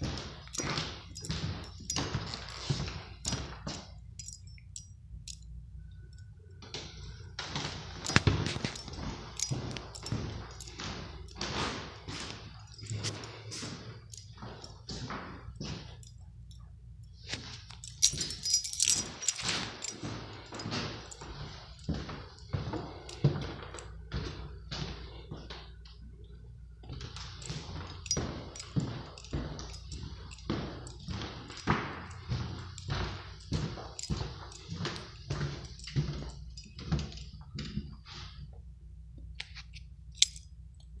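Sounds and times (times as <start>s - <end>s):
footsteps on hardwood floor: 0.0s - 4.0s, 6.7s - 16.2s, 17.2s - 26.1s, 26.8s - 38.6s
keys jangling: 0.0s - 25.2s, 26.8s - 38.3s, 39.4s - 41.0s.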